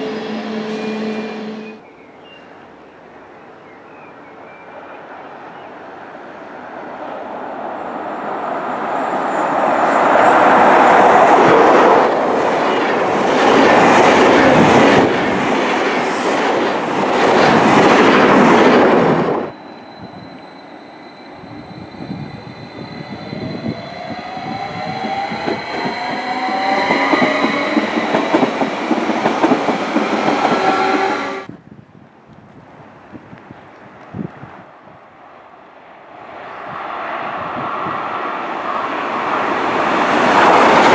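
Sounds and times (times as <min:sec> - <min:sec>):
train rolling noise: 0:05.0 - 0:31.6, 0:36.2 - 0:40.9
train wheels rushing on rails: 0:06.9 - 0:31.5, 0:36.2 - 0:40.9
electric train traction whine: 0:08.2 - 0:31.5.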